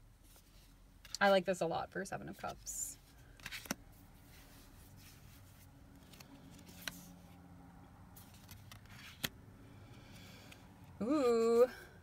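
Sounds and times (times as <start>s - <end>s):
cards clicking: 3.4s - 3.8s, 8.3s - 9.4s.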